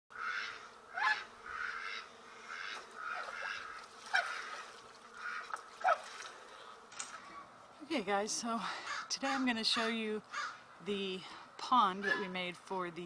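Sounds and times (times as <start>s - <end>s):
geese honking: 0.1s - 6.3s.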